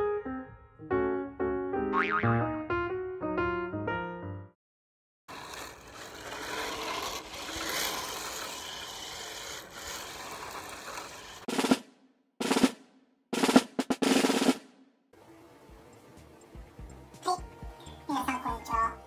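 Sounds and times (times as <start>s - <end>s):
faint high motor whine: 15.2s - 18.2s.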